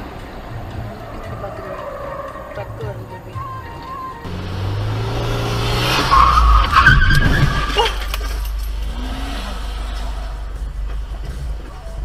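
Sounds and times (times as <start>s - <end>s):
car tyres skidding and squealing: 0.0s - 11.4s
low vehicle rumble: 0.0s - 12.0s.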